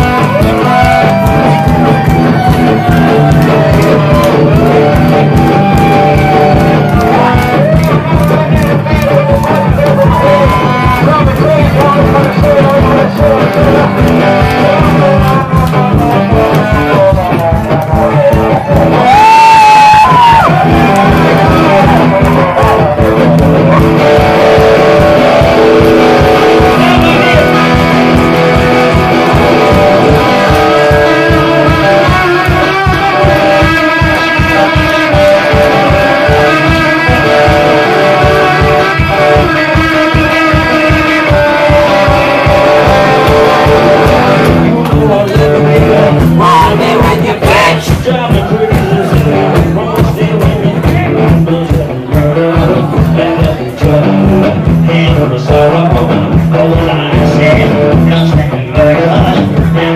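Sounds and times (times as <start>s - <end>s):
amplified electric guitar: 0.0s - 59.9s.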